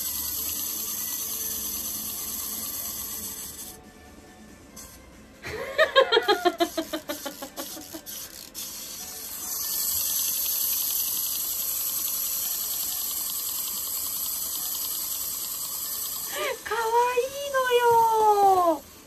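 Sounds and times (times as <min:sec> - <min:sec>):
spring motor whirring tick: 0:06.5 - 0:16.3.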